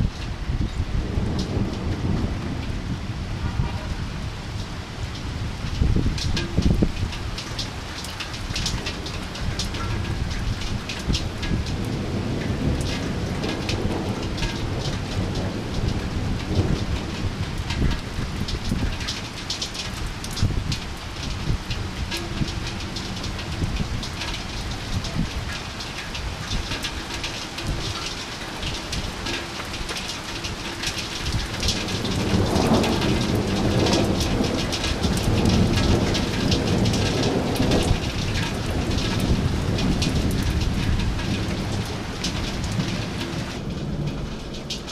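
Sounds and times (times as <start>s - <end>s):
heavy rain falling: 0.0s - 44.9s
thunder rumbling: 0.0s - 44.9s.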